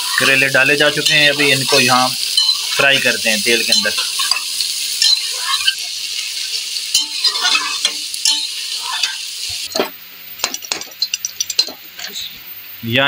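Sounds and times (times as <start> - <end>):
steel spoon scraping and clinking: 0.0 - 9.4, 10.6 - 12.2
vegetables sizzling in oil: 0.0 - 12.8
ladle clinking in a pan: 1.0 - 2.9, 3.6 - 5.8, 6.9 - 11.8.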